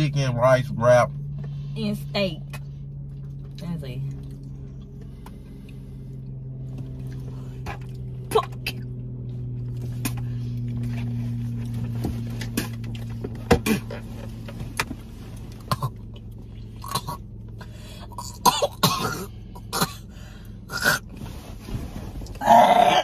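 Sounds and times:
woman coughing and gagging: 0:18.2 - 0:20.1.

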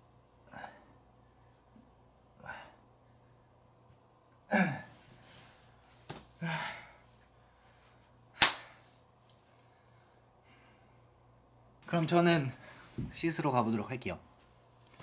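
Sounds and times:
man sighing heavily: 0:06.4 - 0:07.0
sharp slap: 0:08.4 - 0:08.8.

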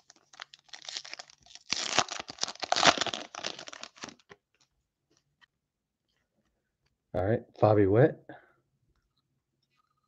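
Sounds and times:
foil wrapper crinkling: 0:00.0 - 0:04.4.

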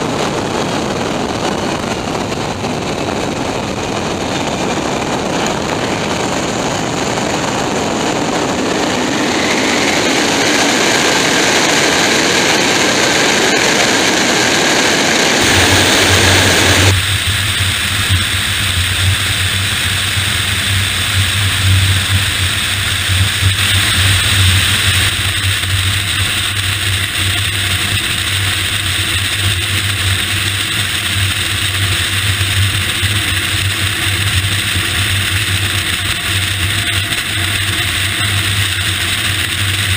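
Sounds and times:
aircraft drone in flight: 0:00.0 - 0:39.9
aircraft engine roaring on takeoff: 0:00.0 - 0:39.9.

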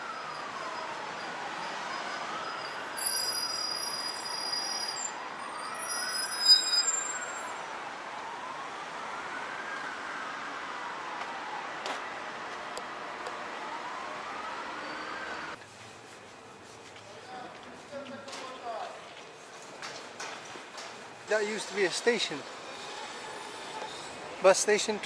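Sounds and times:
emergency siren wailing: 0:00.0 - 0:15.6
traffic noise: 0:00.0 - 0:25.0
shrill high-pitched squeal: 0:01.7 - 0:07.6.

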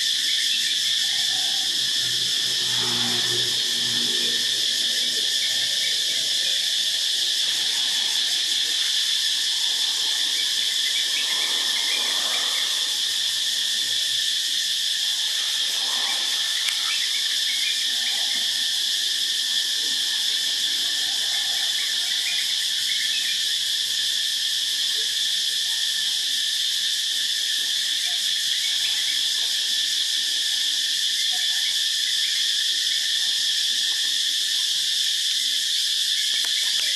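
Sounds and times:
cicadas buzzing: 0:00.0 - 0:36.9.

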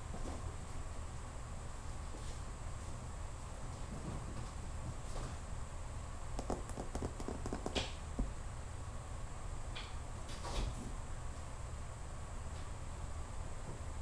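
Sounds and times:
steady low hum: 0:00.0 - 0:14.0
kittens tapping on hard floor: 0:06.4 - 0:07.9.

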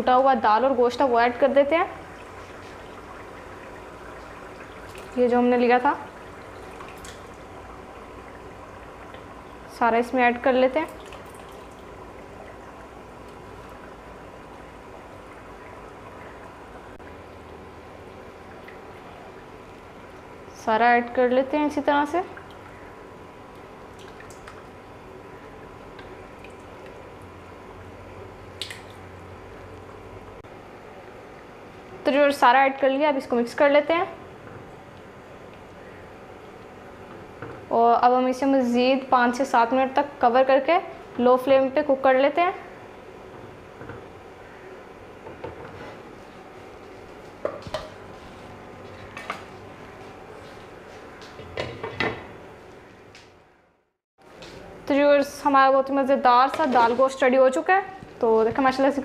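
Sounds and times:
oily sauce bubbling in a pan: 0:02.0 - 0:09.8.

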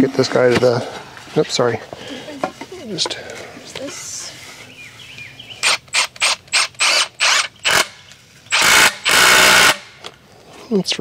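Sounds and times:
power drill whirring: 0:05.6 - 0:10.0.

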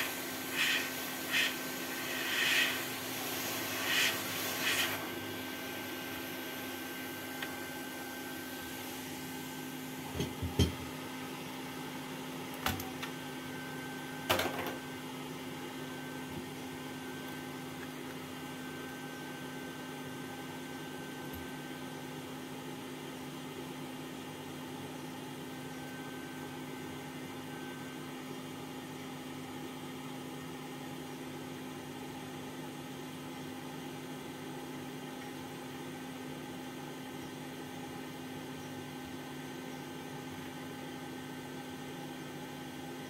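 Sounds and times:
electric blower humming: 0:00.0 - 0:09.8.

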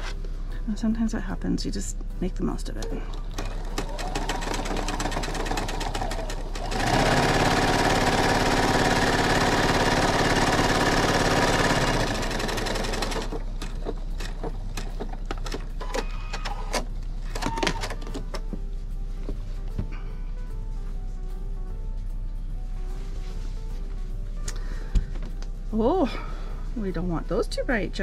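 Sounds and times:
sewing machine running: 0:03.3 - 0:16.6.

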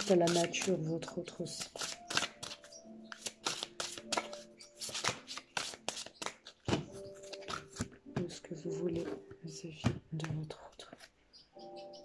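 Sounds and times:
cards being shuffled: 0:00.0 - 0:00.8, 0:01.5 - 0:08.0.

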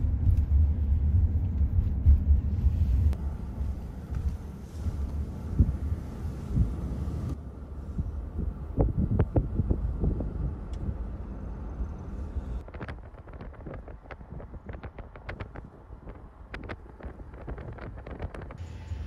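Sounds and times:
wind buffeting microphone: 0:00.0 - 0:18.6.

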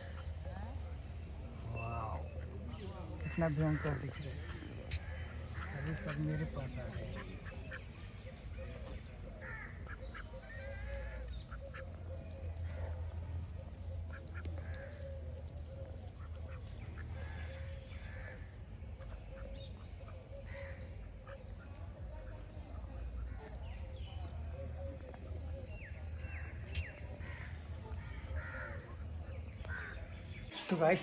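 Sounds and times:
insect trill: 0:00.0 - 0:31.0
geese honking: 0:03.2 - 0:08.4
ducks quacking: 0:03.2 - 0:11.9.

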